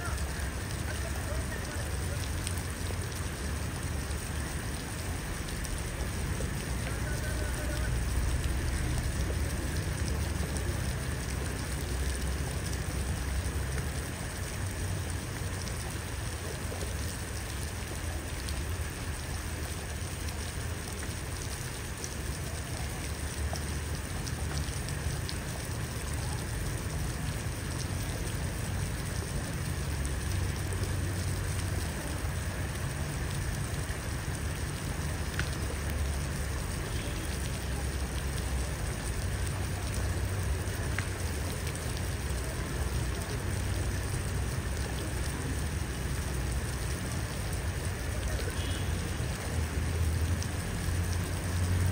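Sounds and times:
water pattering on a puddle: 0:00.0 - 0:51.9
faint ticks: 0:35.3 - 0:37.5, 0:40.9 - 0:42.1.

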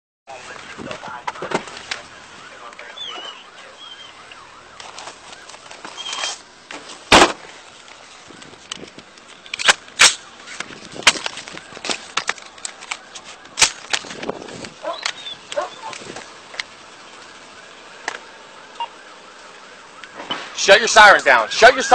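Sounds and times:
rifle and gear clacking: 0:08.7 - 0:16.7.

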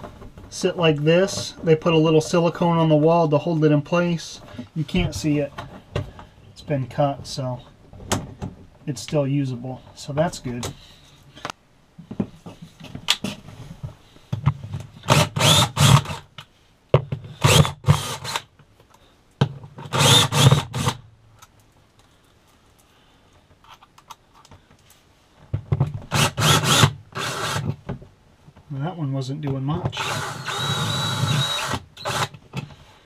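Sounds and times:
cordless drill running: 0:15.1 - 0:16.2, 0:17.4 - 0:18.4, 0:19.9 - 0:21.0, 0:26.1 - 0:27.7, 0:30.0 - 0:32.4.

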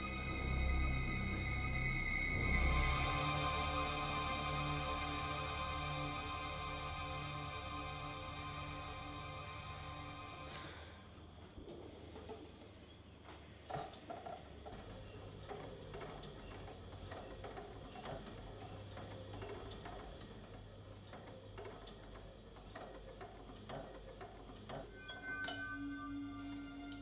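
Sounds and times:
low hum: 0:00.0 - 0:11.4
sewing machine clicking: 0:13.7 - 0:25.0.

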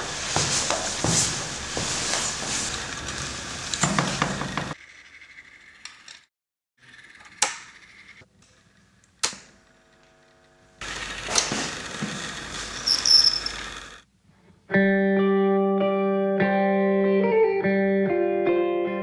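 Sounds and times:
electrical buzz: 0:09.3 - 0:14.0.

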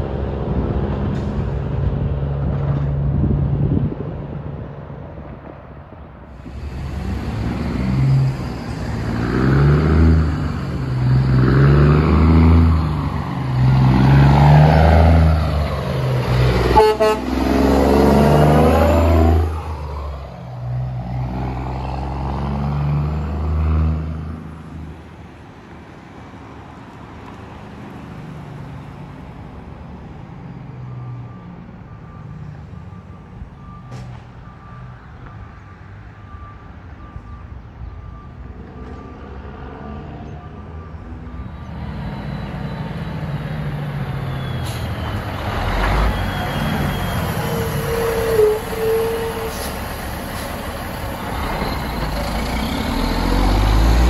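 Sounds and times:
truck diesel engine pulling away: 0:06.4 - 0:25.0, 0:38.0 - 0:54.0
truck horn toot: 0:16.5 - 0:18.8, 0:46.1 - 0:49.8.

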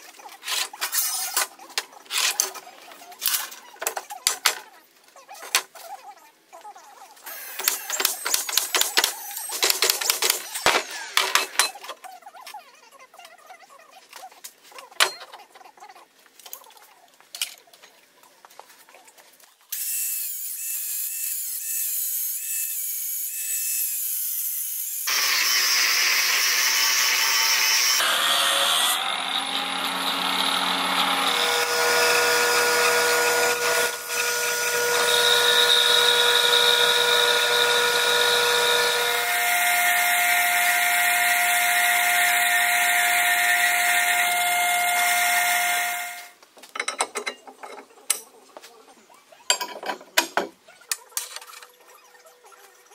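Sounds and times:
angle grinder cutting steel: 0:07.3 - 0:11.8, 0:19.8 - 0:46.4
metal lathe turning steel: 0:25.1 - 0:46.3.

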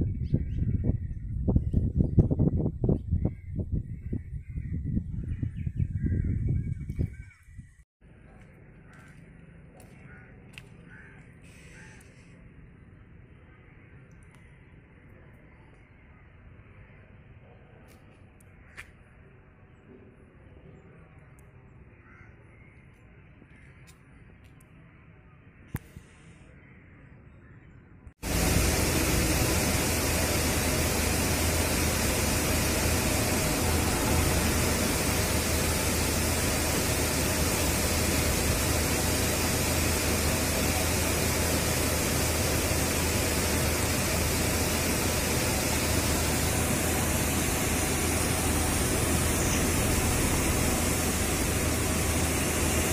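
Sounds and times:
waterfall rushing: 0:28.2 - 0:52.9.

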